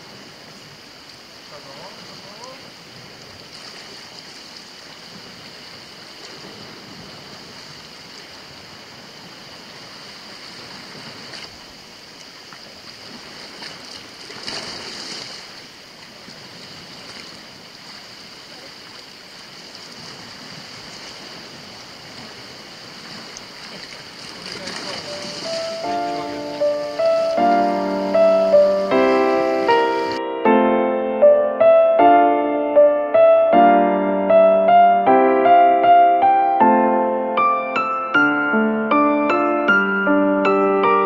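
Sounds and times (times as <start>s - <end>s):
high-pitched hiss: 0.0s - 3.3s, 24.9s - 30.2s
waves washing on rocky shore: 0.0s - 30.2s.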